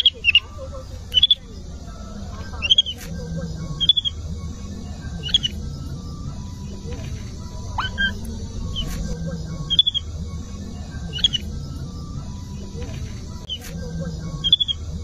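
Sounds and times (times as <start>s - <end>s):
young monkeys squeaky chirps: 0.0s - 4.3s, 5.2s - 5.9s, 6.8s - 10.2s, 10.9s - 11.9s, 12.7s - 15.0s.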